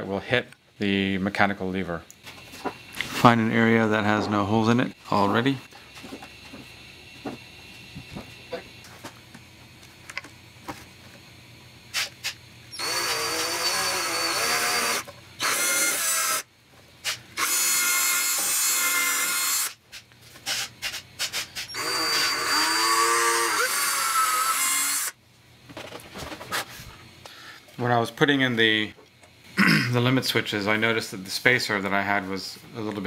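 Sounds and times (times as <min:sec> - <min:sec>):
power drill boring into plywood: 0:12.7 - 0:16.5, 0:17.4 - 0:19.8, 0:21.7 - 0:25.2.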